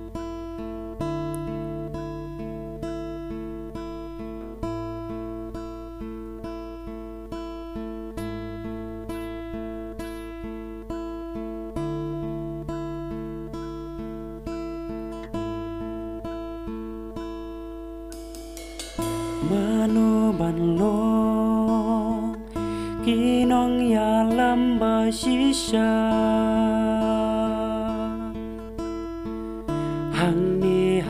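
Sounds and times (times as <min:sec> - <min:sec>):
acoustic guitars strummed: 0:00.0 - 0:31.0
bass guitar: 0:18.1 - 0:24.7.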